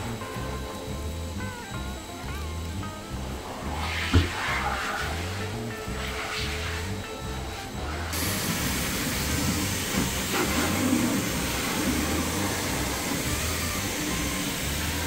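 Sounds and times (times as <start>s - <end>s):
pet dryer blowing air: 3.4s - 15.0s.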